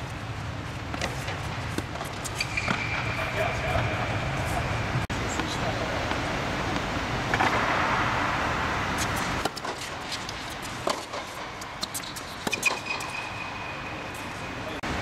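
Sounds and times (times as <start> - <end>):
tennis ball bouncing: 0.9 - 4.1, 5.4 - 7.9, 9.0 - 13.4.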